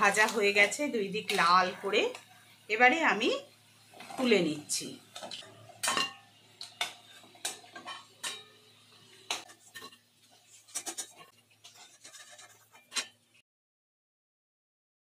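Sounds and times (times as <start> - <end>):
metal spatula scraping plate: 5.2 - 8.6, 9.2 - 13.4.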